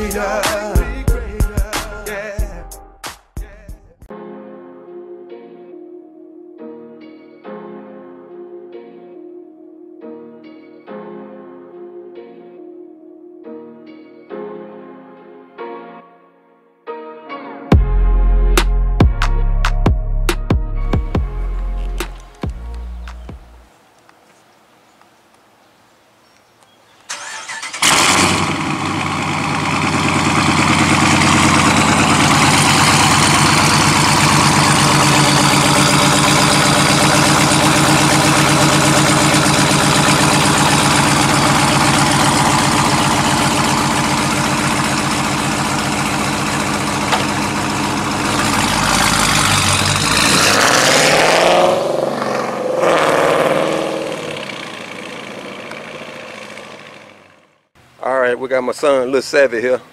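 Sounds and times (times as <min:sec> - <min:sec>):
car engine revving: 0:27.1 - 0:57.6
car engine starting and idling: 0:27.1 - 0:57.8.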